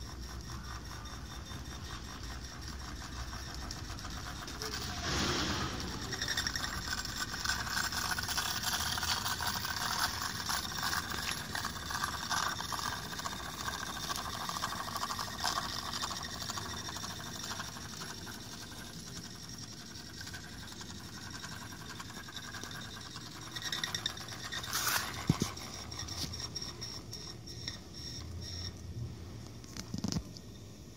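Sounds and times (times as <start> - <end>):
steam engine exhaust chatter: 0.0 - 28.7
steady steam hiss: 4.8 - 6.9
rush of noise with click: 4.9 - 6.0.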